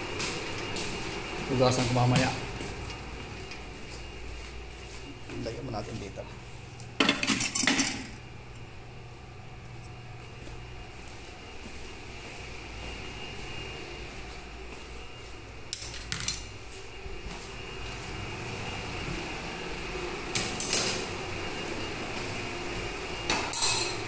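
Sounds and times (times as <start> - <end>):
steady low hum: 0.0 - 24.0
pots and dishes clattering: 7.0 - 8.1.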